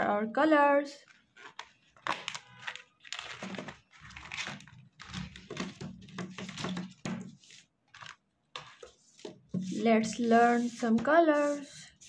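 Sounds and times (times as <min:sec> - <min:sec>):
plastic pouch crinkling: 0:01.1 - 0:07.0
plastic markers clattering: 0:01.1 - 0:09.4.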